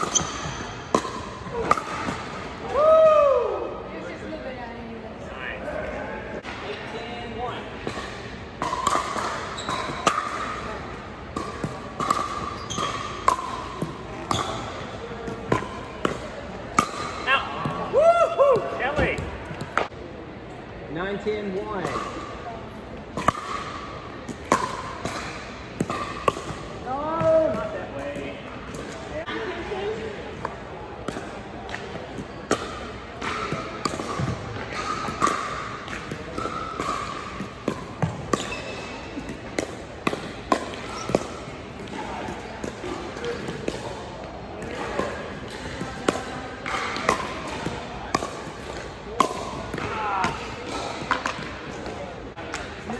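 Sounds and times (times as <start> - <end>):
ball bouncing on hardwood court: 7.9 - 10.5, 11.3 - 16.2, 31.1 - 43.9.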